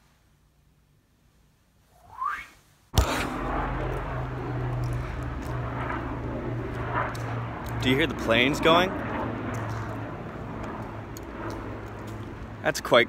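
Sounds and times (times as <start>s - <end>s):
distant airplane drone: 2.9s - 13.0s.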